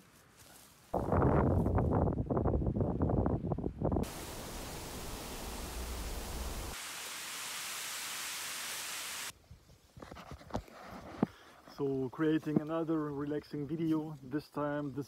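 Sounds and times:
dry reeds rustling: 0:00.0 - 0:01.9
wind through dry grass: 0:00.0 - 0:06.8
wind buffeting microphone: 0:01.0 - 0:04.4.

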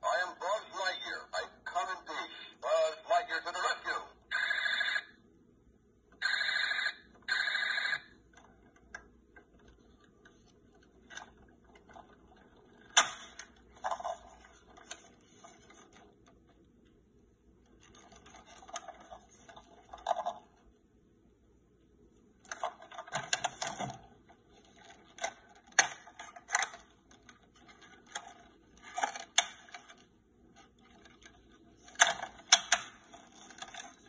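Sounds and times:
plastic toy clicks and handling: 0:24.6 - 0:34.0.

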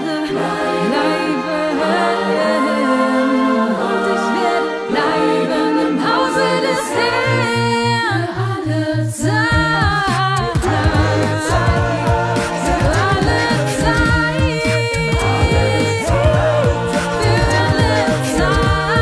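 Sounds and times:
a cappella voices singing chords: 0:00.0 - 0:19.0
low rhythmic pulse: 0:09.5 - 0:19.0.

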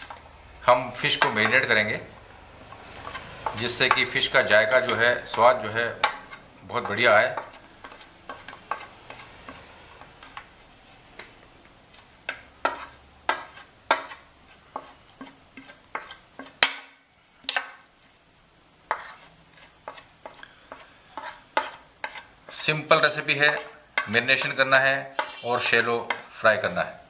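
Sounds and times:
metal spoon scraping plastic plate: 0:14.8 - 0:16.6, 0:18.9 - 0:22.7.

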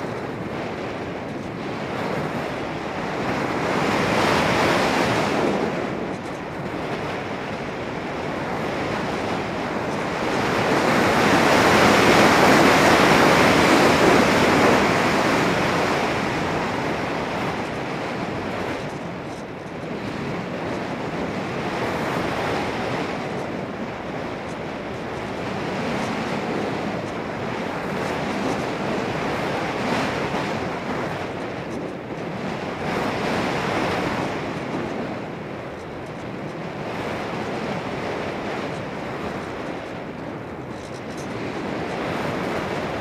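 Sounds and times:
wind noise on microphone: 0:00.0 - 0:43.0.

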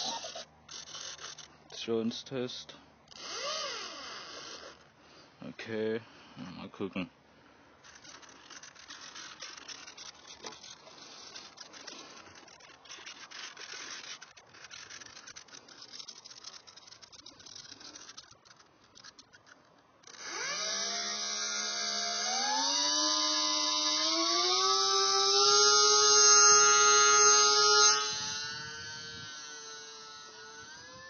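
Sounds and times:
electric motor and propeller whine: 0:00.0 - 0:01.5, 0:03.1 - 0:04.8, 0:07.8 - 0:31.0
faint rustling: 0:07.4 - 0:20.2.

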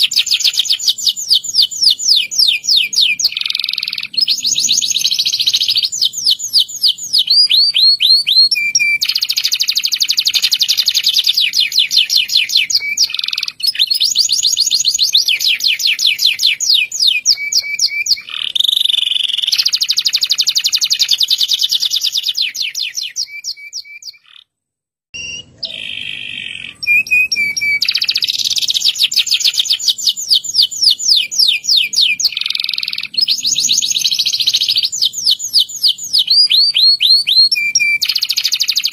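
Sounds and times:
canary singing trills: 0:00.0 - 0:24.5, 0:25.2 - 0:38.9.

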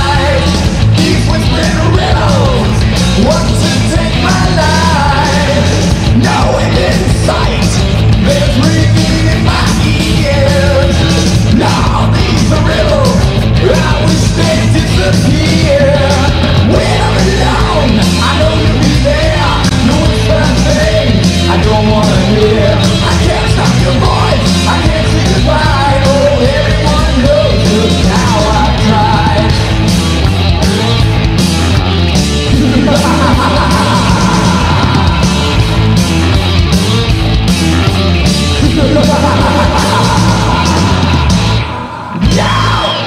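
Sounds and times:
bass: 0:00.0 - 0:43.0
distorted guitars: 0:00.0 - 0:43.0
drums: 0:00.0 - 0:43.0
lead guitar melody bending: 0:28.4 - 0:43.0.

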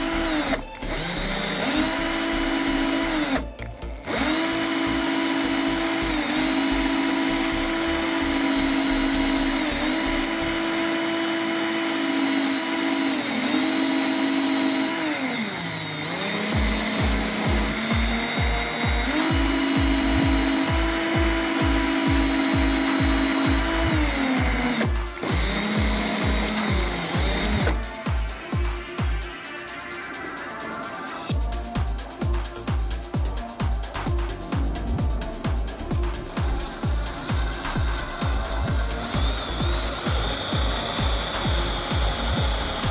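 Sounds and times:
cordless drill motor whining: 0:00.0 - 0:28.1, 0:35.7 - 0:42.9
grinding stone sanding wood: 0:04.1 - 0:27.9, 0:34.5 - 0:42.9.

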